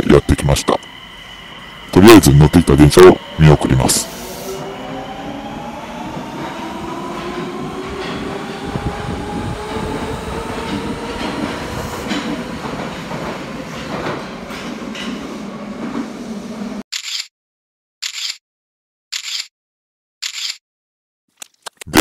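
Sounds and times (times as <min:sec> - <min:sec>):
wheels rumbling on rail: 0:00.1 - 0:16.8
train cars clacking: 0:06.2 - 0:16.1.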